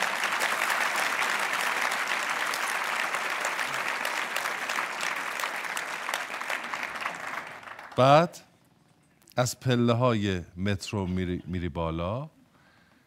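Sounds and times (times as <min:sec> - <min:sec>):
large audience applauding: 0:00.0 - 0:08.3.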